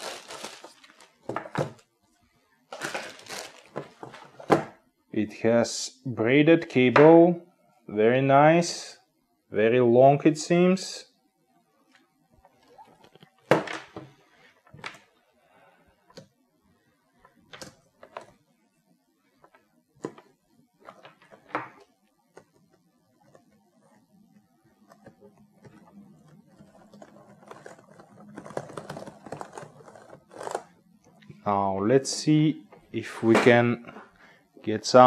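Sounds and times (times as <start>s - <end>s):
rapid keyboard typing: 24.9s - 30.6s.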